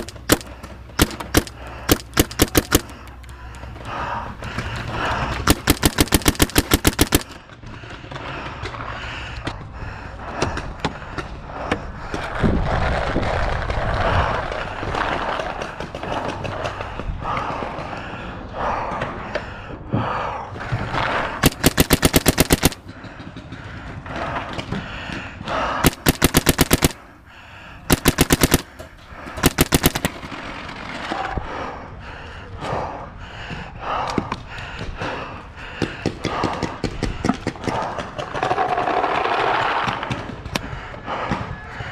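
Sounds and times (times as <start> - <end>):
scattered pops: 0.0 - 3.0, 5.4 - 7.4, 21.4 - 22.8, 25.8 - 27.0, 27.9 - 30.4
paintball marker rapid firing: 0.0 - 3.1, 5.0 - 7.4, 21.4 - 22.9, 25.8 - 27.1, 27.9 - 30.5.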